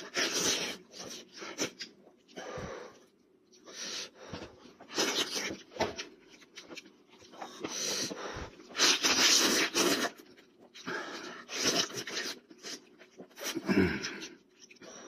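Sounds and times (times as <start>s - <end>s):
person slurping and chewing: 6.3s - 14.8s.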